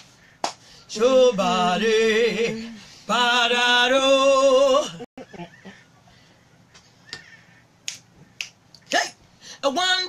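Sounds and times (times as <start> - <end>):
woman singing gospel: 0.9 - 5.0, 9.6 - 10.0.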